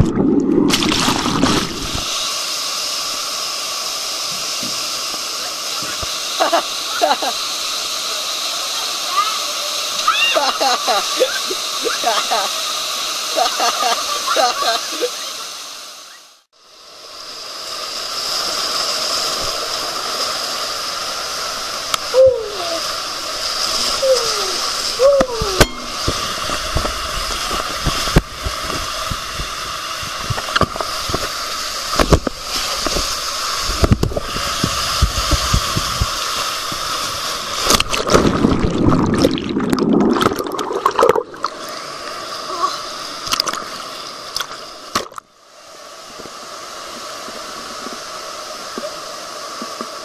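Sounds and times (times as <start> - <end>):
loud splash into pool: 0.0 - 2.3, 37.4 - 41.8
water rushing down slide: 0.0 - 15.6, 17.3 - 45.1
water hissing in pool: 0.0 - 50.0.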